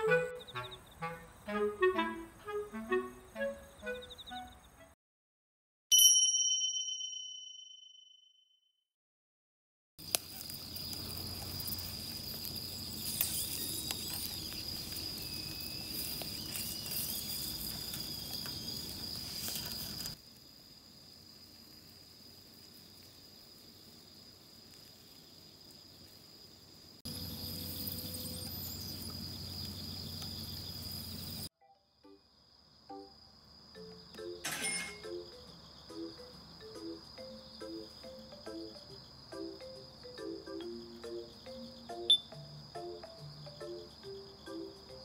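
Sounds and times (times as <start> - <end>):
night insects trilling: 10.0 - 45.0.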